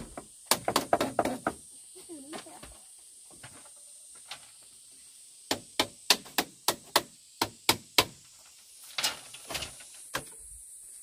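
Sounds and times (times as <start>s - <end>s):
hand tool striking blows: 5.4s - 8.4s.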